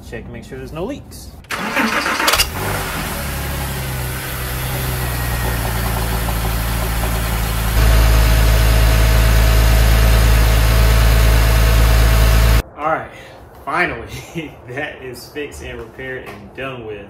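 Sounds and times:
car starter cranking: 1.4s - 3.3s, 4.5s - 12.6s
car engine idling: 1.5s - 12.6s.

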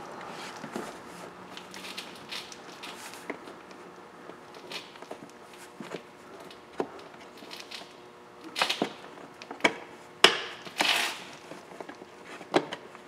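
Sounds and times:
rustling scrape: 0.3s - 3.2s.

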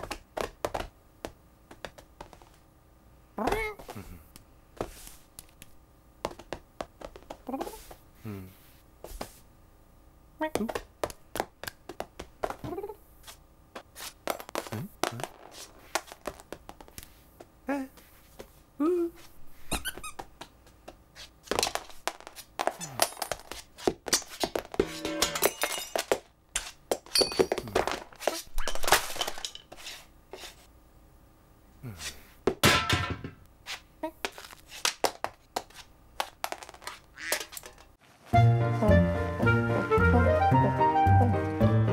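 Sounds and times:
small objects clattering on floor: 14.2s - 16.5s, 21.5s - 30.0s, 36.2s - 38.0s.

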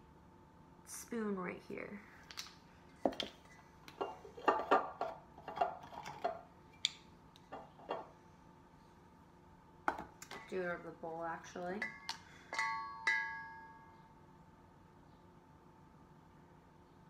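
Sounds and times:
glass bottle clinking: 11.8s - 14.0s.

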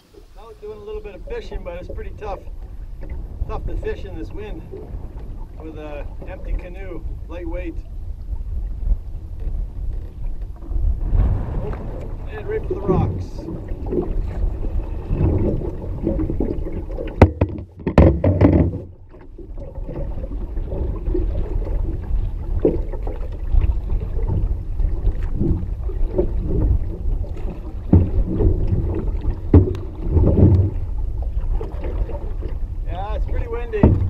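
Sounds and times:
water against canoe hull: 0.0s - 34.0s
wind on microphone: 0.0s - 34.0s
sharp knocks: 17.2s - 18.9s, 33.8s - 34.0s.

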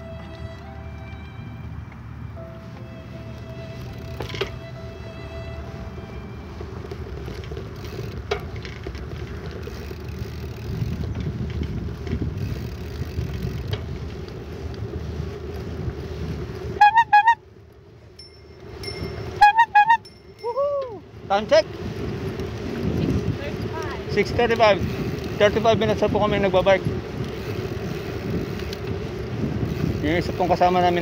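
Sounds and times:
bicycle tyre noise on pavement: 0.0s - 31.0s
wind buffeting microphone: 0.0s - 31.0s
rapid ringing notes: 18.1s - 20.6s.

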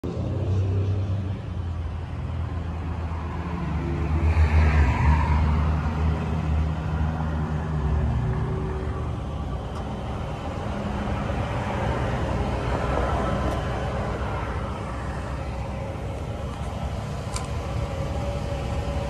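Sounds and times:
pickup engine idling: 6.6s - 19.0s.

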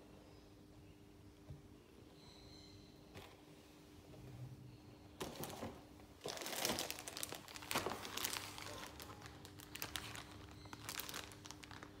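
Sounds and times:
plastic bag crinkling: 5.2s - 12.0s.

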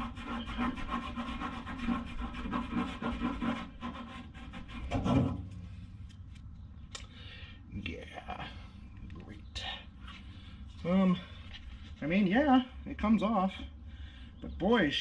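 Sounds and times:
fingers scratching rust in metal tank: 0.0s - 5.6s.

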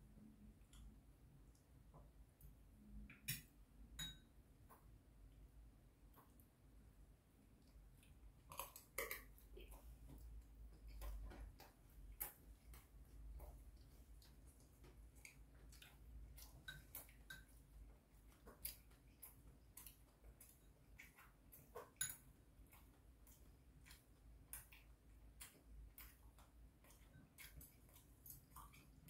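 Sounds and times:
mouth clicks of chewing food: 7.6s - 29.0s.

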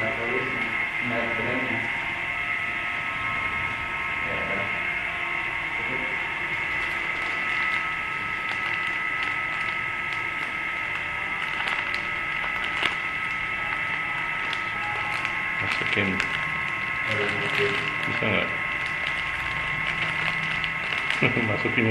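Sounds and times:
high-pitched electric whine: 0.0s - 21.9s
plastic snack packet crinkling: 6.7s - 21.9s.

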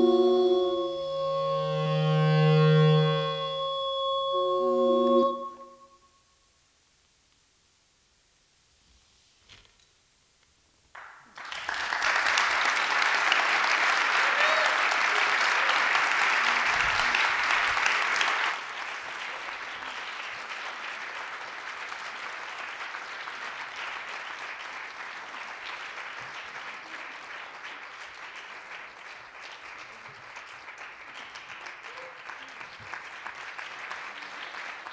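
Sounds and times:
audience applauding: 11.0s - 34.9s.

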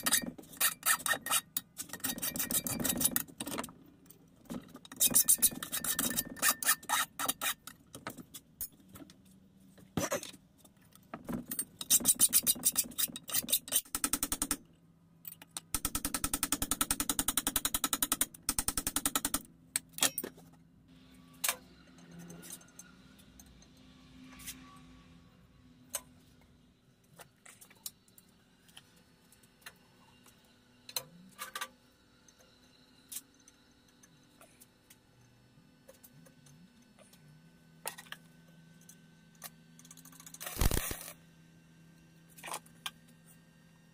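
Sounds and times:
scraping strokes on steel rod: 0.0s - 3.2s, 4.9s - 7.7s, 24.2s - 25.4s.

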